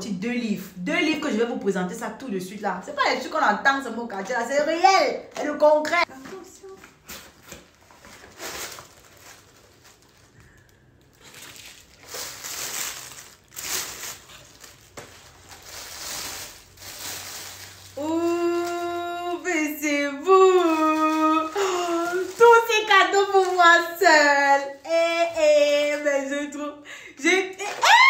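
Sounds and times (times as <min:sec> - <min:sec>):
tissue paper rustling: 0:06.1 - 0:26.0.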